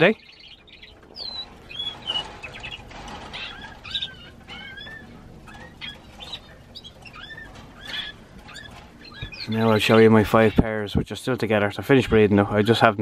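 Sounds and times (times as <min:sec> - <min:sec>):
canaries chirping: 0:00.0 - 0:13.0.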